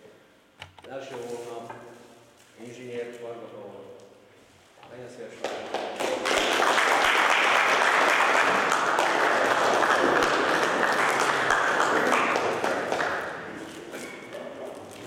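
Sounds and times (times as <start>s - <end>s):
audience applauding: 5.4s - 14.5s.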